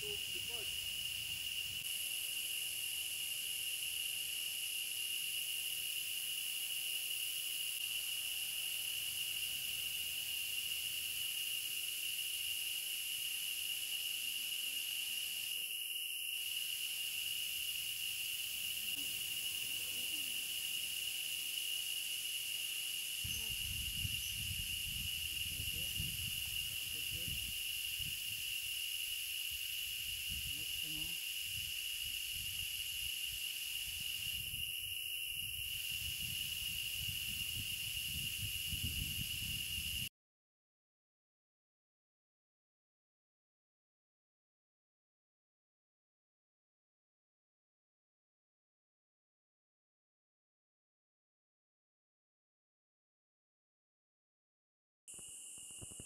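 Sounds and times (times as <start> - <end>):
forest insects droning: 0.0 - 40.1, 55.1 - 56.0.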